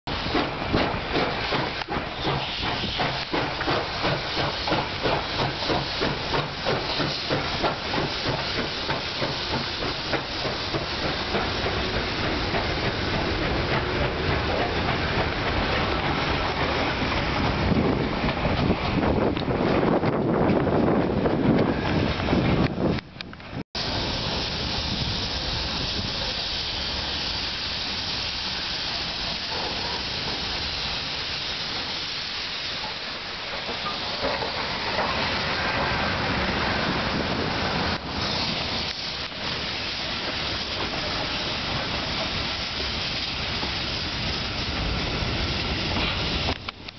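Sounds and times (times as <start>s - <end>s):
steam locomotive hissing: 0.1s - 23.0s, 23.8s - 46.9s
locomotive low rumble: 0.1s - 28.2s.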